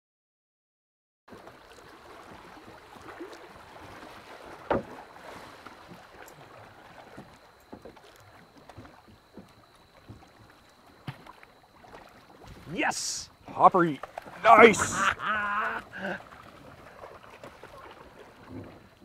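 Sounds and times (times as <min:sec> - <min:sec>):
river water lapping: 0:01.3 - 0:19.0.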